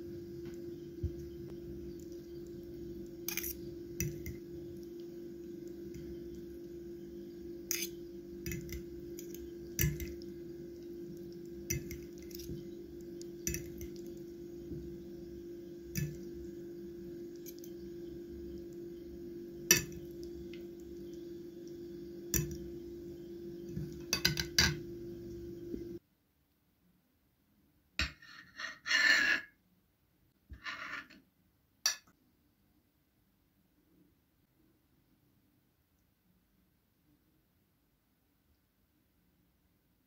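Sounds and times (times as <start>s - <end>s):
steady low hum: 0.0s - 26.0s
soft wet food sounds: 0.1s - 26.0s
fork tines clinking on plate: 3.3s - 4.4s, 7.7s - 10.2s, 13.4s - 14.0s.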